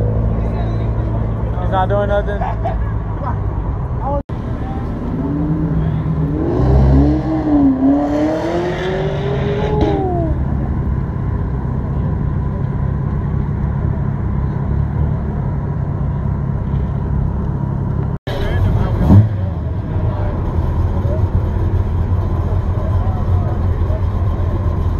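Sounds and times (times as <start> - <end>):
car engine revving: 4.3 - 15.9, 18.3 - 24.9.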